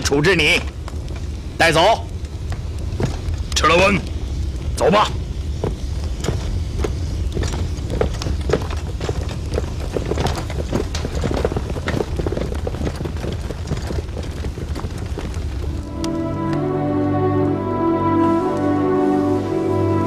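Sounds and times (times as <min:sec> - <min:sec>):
low rumble: 0:00.7 - 0:20.0
footsteps walking on ground: 0:05.4 - 0:16.6.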